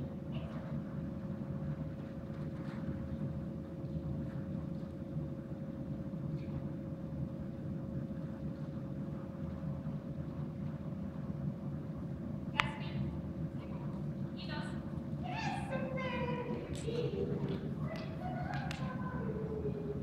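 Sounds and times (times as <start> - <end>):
ventilation hum and rumble: 0.0 - 20.0.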